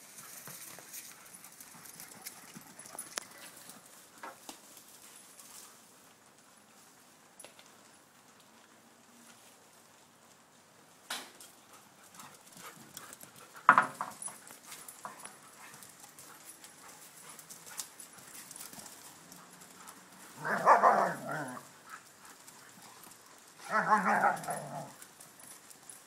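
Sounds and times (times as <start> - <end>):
dogs scuffling: 11.4 - 26.0
dogs barking: 18.8 - 21.8, 23.6 - 24.9.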